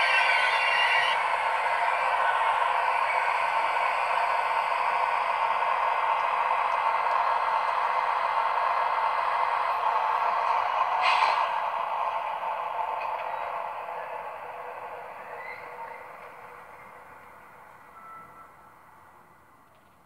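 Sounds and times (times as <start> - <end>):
brief hiss: 11.0 - 11.6.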